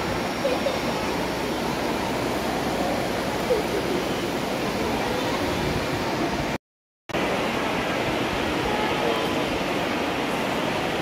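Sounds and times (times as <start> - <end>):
faint voices: 0.2 - 6.4, 8.4 - 10.7.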